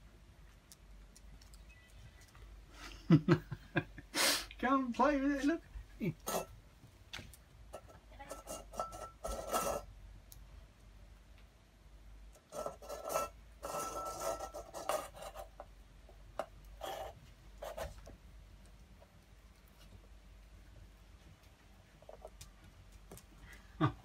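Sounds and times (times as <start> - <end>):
metal bowl scraping on wooden floor: 6.2 - 6.6, 7.8 - 9.9, 12.4 - 15.6, 16.8 - 17.8.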